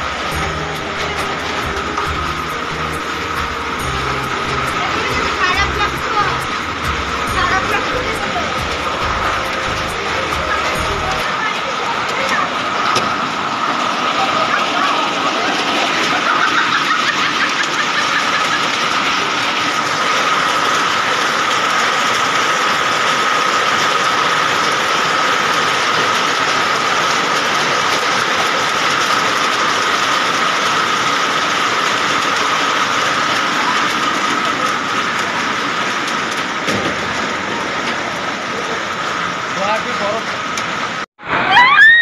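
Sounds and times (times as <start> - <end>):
steady high-pitched tone: 0.0 - 12.7
hail pelting hard surfaces: 0.0 - 41.1.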